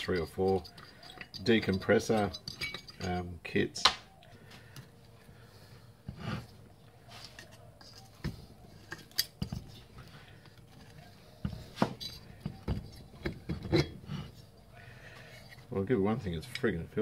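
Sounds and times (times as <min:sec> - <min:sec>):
metal tools clinking: 0:00.0 - 0:03.4.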